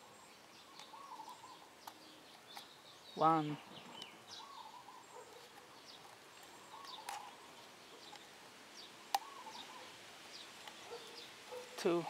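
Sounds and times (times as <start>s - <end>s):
faint birds chirping: 0.0s - 12.0s
plastic housing clicks: 5.4s - 7.4s.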